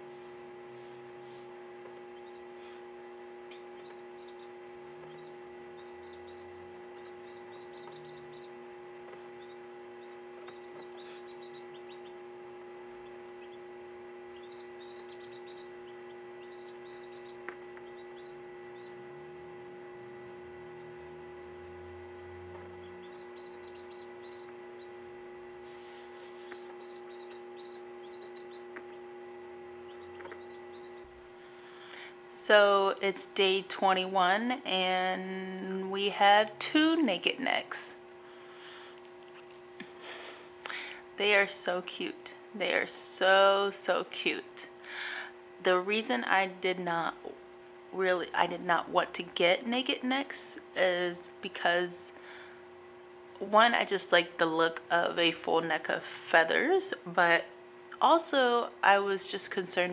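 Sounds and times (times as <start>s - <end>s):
incubator electrical hum: 0.0s - 59.9s
chick peeping: 2.1s - 2.6s, 3.5s - 12.2s, 12.9s - 13.7s, 14.3s - 19.0s, 22.5s - 25.0s, 25.8s - 29.1s, 29.8s - 31.1s.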